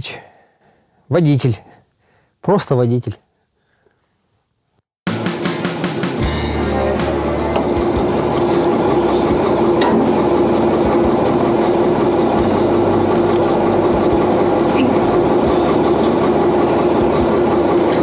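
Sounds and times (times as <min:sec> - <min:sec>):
truck engine idling: 0:06.2 - 0:18.0.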